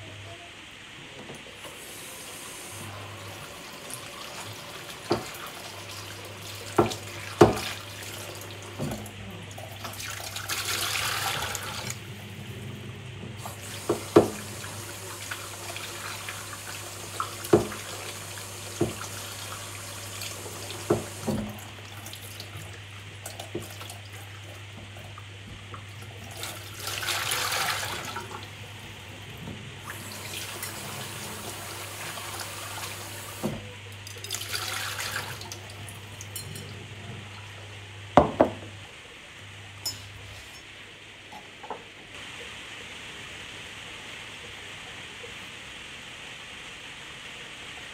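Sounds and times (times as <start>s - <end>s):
tap running into a sink: 3.9s - 9.2s, 13.4s - 21.7s, 22.4s - 24.0s, 29.4s - 35.6s, 38.2s - 38.8s
bowls knocking against sink: 6.7s - 7.8s, 17.5s - 17.8s, 18.8s - 19.1s, 20.8s - 21.6s, 38.2s - 38.8s.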